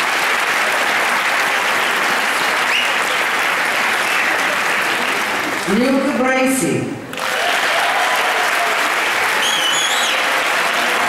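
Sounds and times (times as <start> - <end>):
audience applauding: 0.0 - 6.2, 7.1 - 11.0
rising whistle: 9.4 - 10.2.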